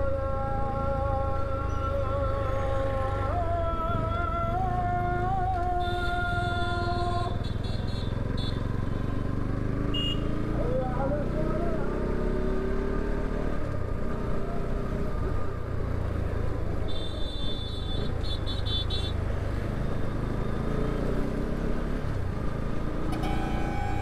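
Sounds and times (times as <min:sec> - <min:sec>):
road and wind noise: 0:00.0 - 0:24.0
vehicle horn: 0:05.8 - 0:09.1, 0:09.9 - 0:10.3, 0:16.9 - 0:19.2, 0:23.1 - 0:24.0.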